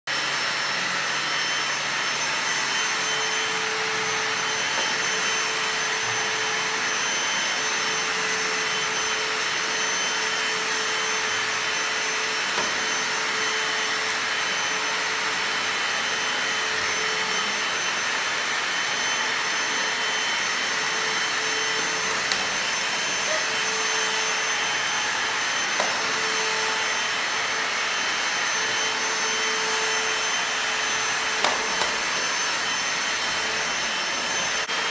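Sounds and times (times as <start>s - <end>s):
vacuum cleaner running: 0.1s - 34.9s.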